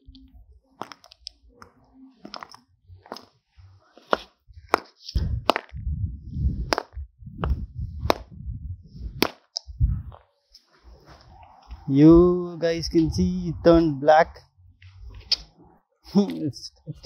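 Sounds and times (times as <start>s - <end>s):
low rumble: 4.5s - 10.2s, 10.8s - 15.8s.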